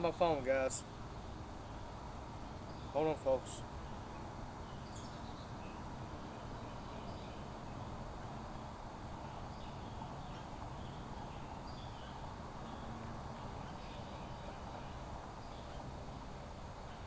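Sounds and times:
faint high bird chirps: 8.6 - 15.9.

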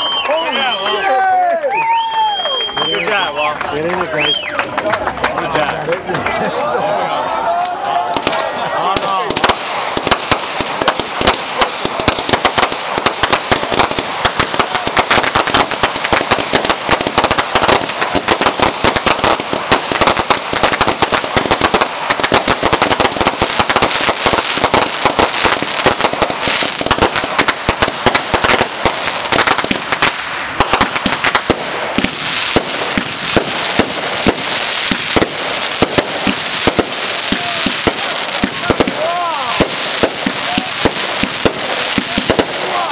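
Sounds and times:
fireworks crackling and popping: 0.0 - 6.6, 7.6 - 42.9
fireworks launching hiss: 9.0 - 42.9.

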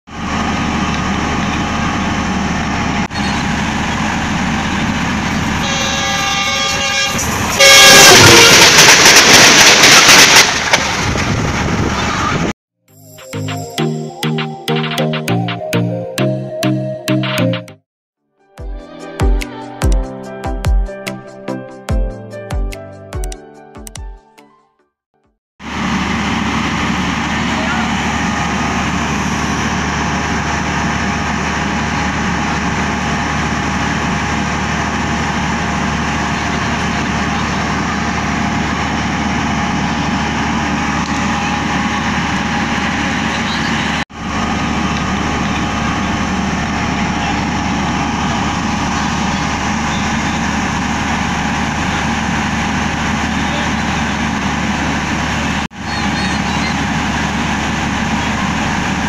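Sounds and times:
train diesel engine idling: 0.1 - 12.5, 25.6 - 59.0.

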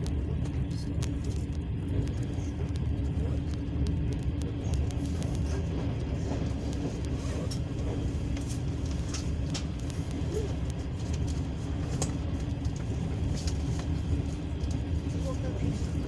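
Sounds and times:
sharp clicks and rattles: 0.0 - 15.0
freight train rumbling past: 0.0 - 16.0.

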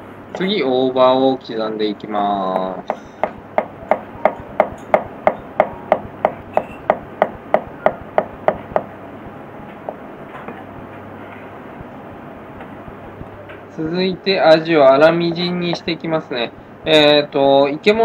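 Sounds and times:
knife chopping on cutting board: 2.9 - 8.9.

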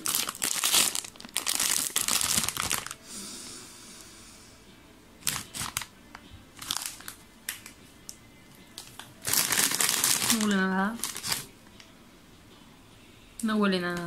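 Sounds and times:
foil chip bag crinkling: 0.0 - 3.0, 5.2 - 5.9, 6.6 - 7.8, 8.8 - 11.5.

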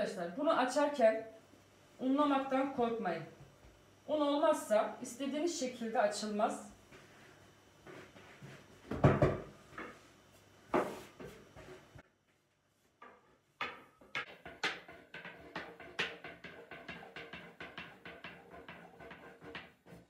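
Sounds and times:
rolling pin knocking on board: 8.9 - 10.0, 13.0 - 20.0.

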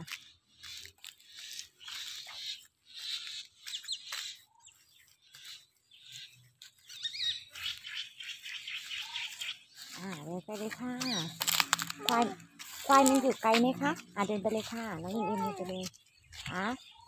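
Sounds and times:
footsteps rustling through dry grass: 0.0 - 17.0.

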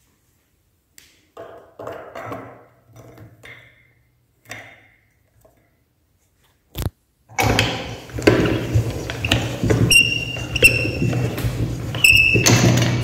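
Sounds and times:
high squeaks of grinder mechanism: 9.2 - 11.3, 11.9 - 13.0.

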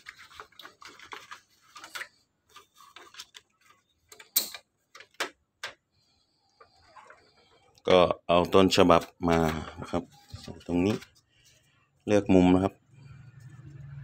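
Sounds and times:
paper rustling and sliding: 0.0 - 4.0, 9.3 - 11.7.

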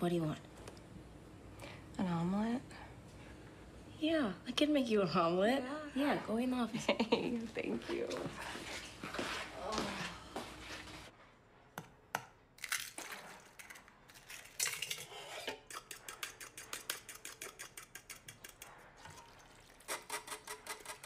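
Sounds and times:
eggs beaten in metal bowl: 14.3 - 21.0.

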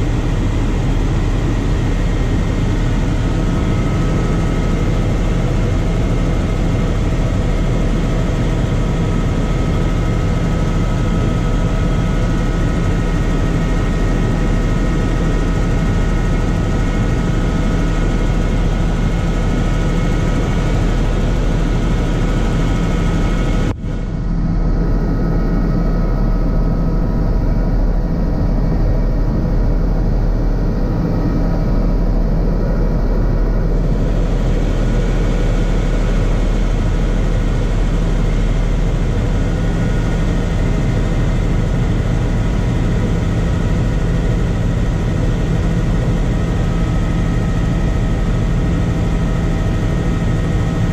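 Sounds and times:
helicopter rotor and engine drone: 0.0 - 50.9
steady whining tones: 12.8 - 50.8.

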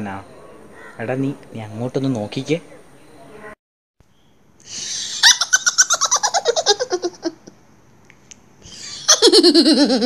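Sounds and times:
woman's ghostly cackle: 4.9 - 7.6, 8.8 - 10.0.

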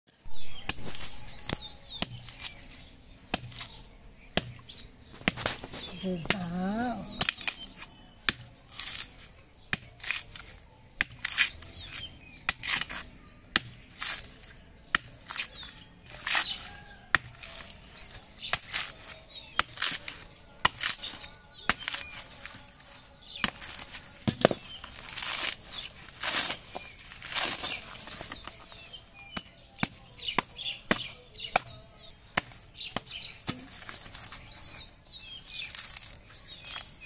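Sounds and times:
blade striking coconut husk: 0.6 - 37.0
fibrous husk tearing: 15.1 - 28.8, 32.4 - 37.0.

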